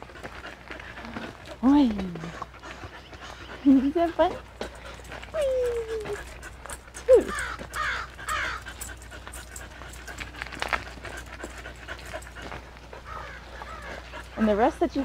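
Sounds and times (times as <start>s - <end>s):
footsteps on gravel: 6.0s - 14.8s
harsh cawing calls: 7.3s - 8.7s
stroller wheels crunching on gravel: 9.7s - 13.8s.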